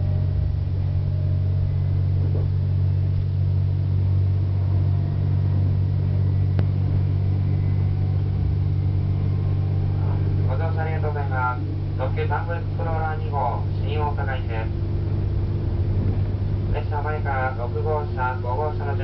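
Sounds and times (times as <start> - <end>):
diesel railcar drone: 0.0 - 19.0.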